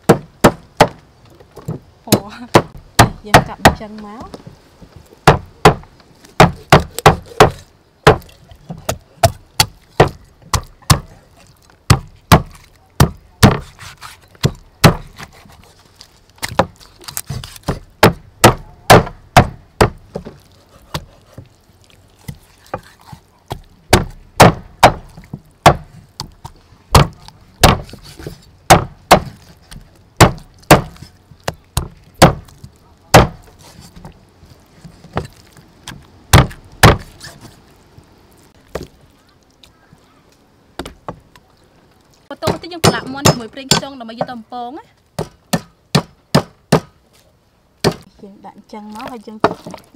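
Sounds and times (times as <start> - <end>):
meat cleaver chopping through bone: 6.4 - 8.2.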